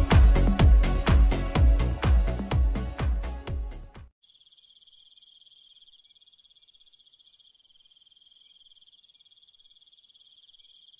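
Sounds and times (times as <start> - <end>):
insects trilling: 4.2 - 10.9.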